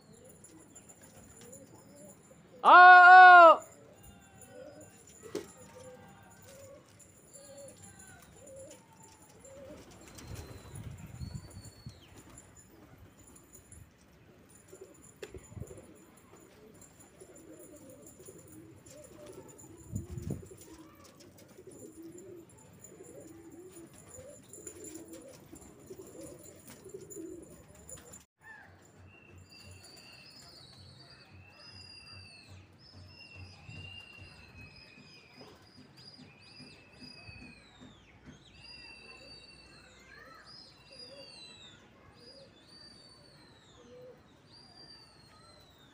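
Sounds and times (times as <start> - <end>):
pigeons cooing: 4.4 - 10.9, 14.5 - 28.2.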